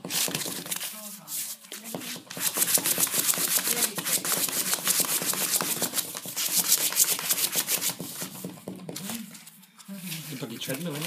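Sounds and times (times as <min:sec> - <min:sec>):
puppy claws scratching cardboard: 0:00.0 - 0:09.4.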